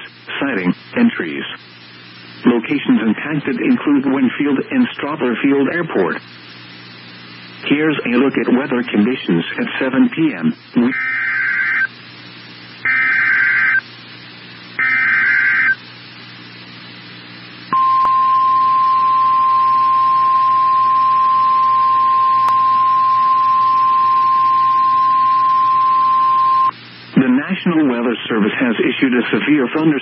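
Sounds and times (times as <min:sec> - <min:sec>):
faint static: 0:00.0 - 0:30.0
screeching data bursts: 0:10.8 - 0:12.0, 0:12.8 - 0:13.8, 0:14.8 - 0:15.8
steady alert tone: 0:14.8 - 0:15.8.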